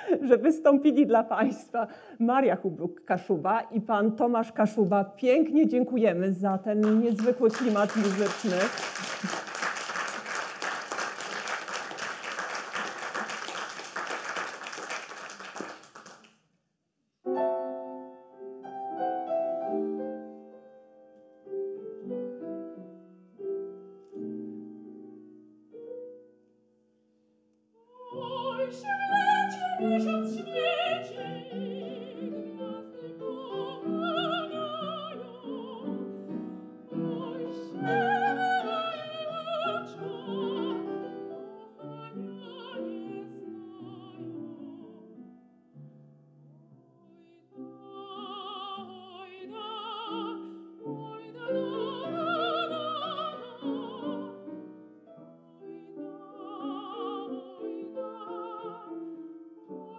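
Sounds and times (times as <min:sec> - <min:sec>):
audience applauding: 0:06.8 - 0:16.4
grand piano playing: 0:17.3 - 0:26.7, 0:28.2 - 0:46.8, 0:47.6 - 0:59.9
soprano singing with vibrato: 0:27.8 - 0:45.2, 0:47.0 - 0:54.7, 0:55.4 - 0:59.9.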